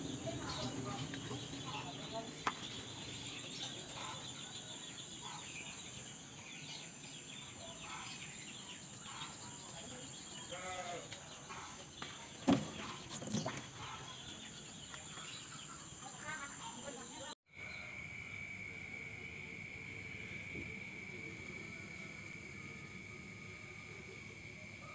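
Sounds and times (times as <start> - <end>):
high insect drone: 0.0 - 12.3, 13.8 - 24.9.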